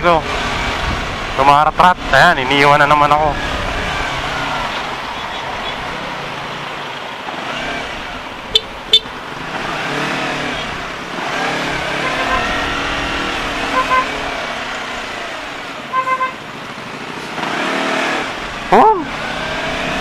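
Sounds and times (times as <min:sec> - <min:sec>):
motorcycle engine revving: 0:00.0 - 0:20.0
road and traffic noise: 0:00.0 - 0:20.0.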